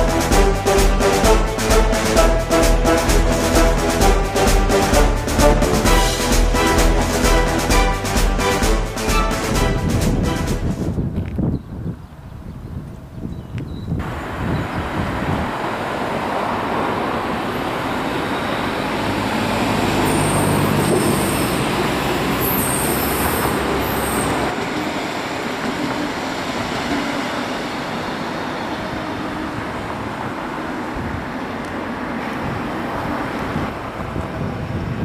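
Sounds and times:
train wheels rumbling on rail: 0:00.0 - 0:11.4, 0:14.0 - 0:35.0
high wheel squeal: 0:17.3 - 0:29.6.

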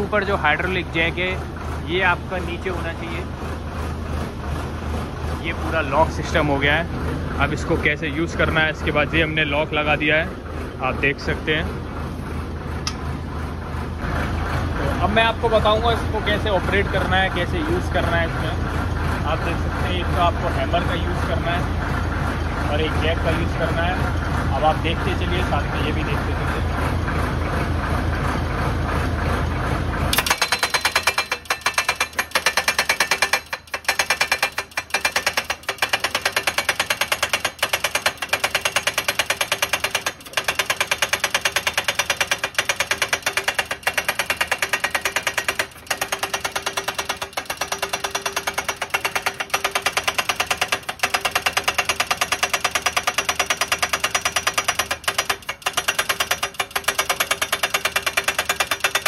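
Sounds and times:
hydraulic breaker hammering: 0:30.0 - 0:59.0.

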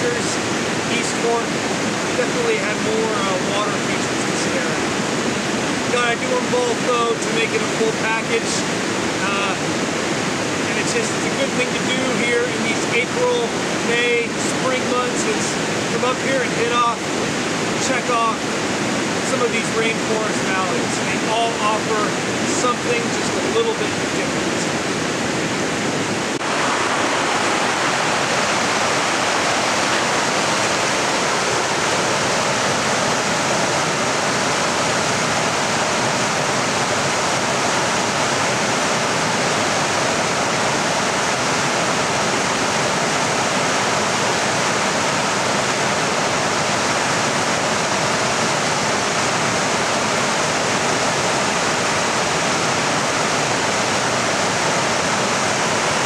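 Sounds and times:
river rushing over rocks: 0:00.0 - 0:56.0.

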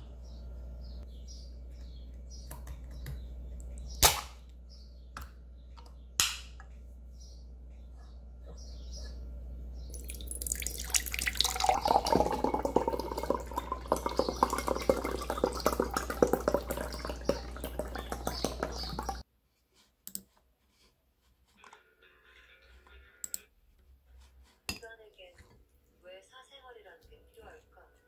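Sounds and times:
liquid gurgling and splashing pour: 0:10.0 - 0:19.2.

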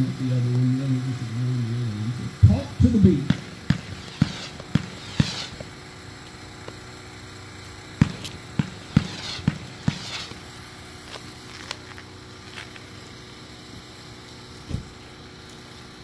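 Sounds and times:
hissing crackle: 0:01.7 - 0:16.0
firework bangs: 0:02.4 - 0:11.1.

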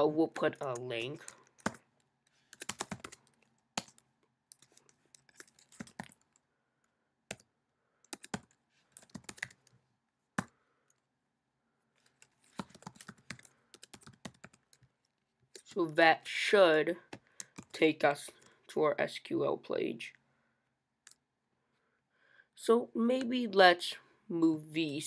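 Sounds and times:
computer keyboard typing: 0:00.5 - 0:06.4, 0:07.3 - 0:09.8, 0:10.4 - 0:11.0, 0:12.0 - 0:15.0, 0:17.1 - 0:18.5.

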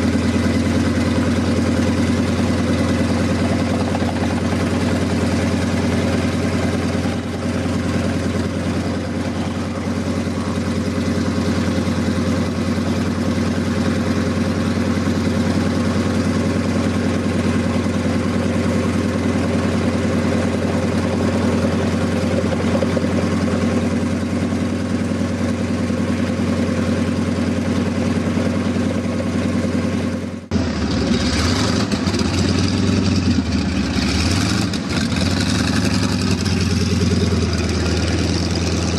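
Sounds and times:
plane radial engine idling: 0:00.0 - 0:38.9.

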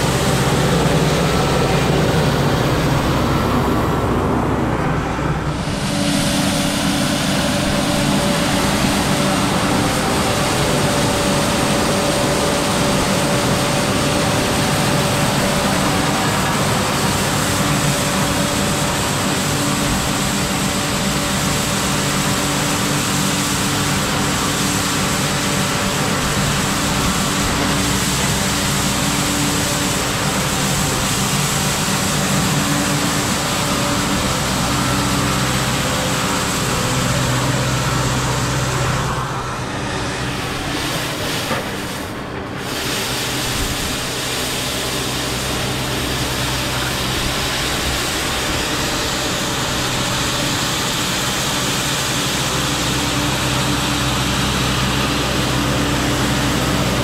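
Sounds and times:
tractor diesel engine running: 0:00.0 - 0:57.0
broom bristles sweeping snow: 0:40.4 - 0:49.4.

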